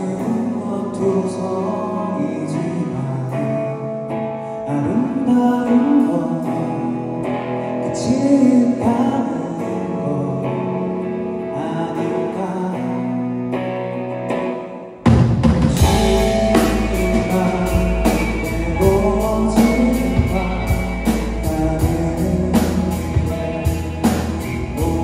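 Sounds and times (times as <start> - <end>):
man singing: 0.0 - 13.5, 15.6 - 25.0
electric guitar: 0.0 - 25.0
keyboard: 0.0 - 25.0
drums: 14.1 - 25.0
bass: 15.0 - 25.0.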